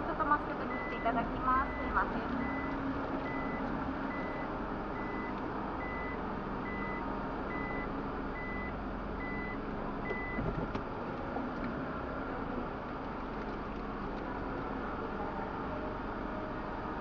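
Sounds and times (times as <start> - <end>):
short electronic warning beeps: 5.0 - 10.4.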